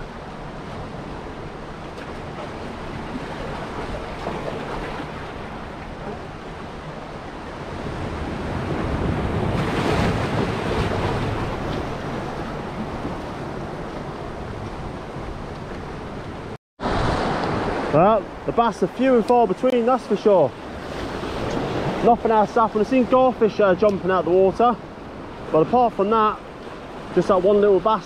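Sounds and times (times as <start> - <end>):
waves washing against rocks: 7.6 - 15.4.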